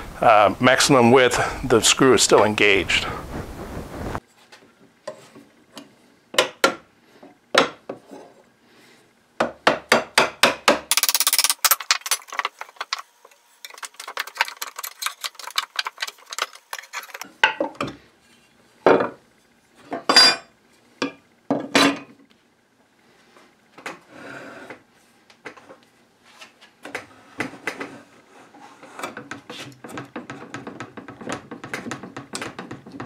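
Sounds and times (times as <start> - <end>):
chisel scraping clatter: 11.6 - 17.3.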